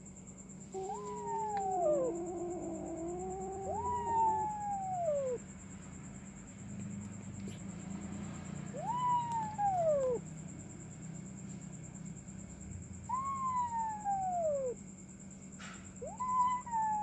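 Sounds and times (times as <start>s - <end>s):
kitten meowing: 0.8s - 5.4s, 8.8s - 10.2s, 16.0s - 17.0s.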